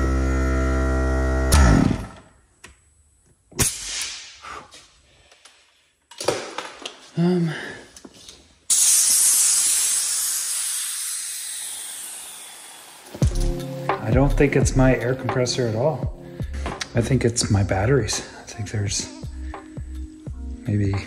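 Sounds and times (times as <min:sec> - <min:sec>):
compressed air hissing from hose: 0:08.7 - 0:13.4.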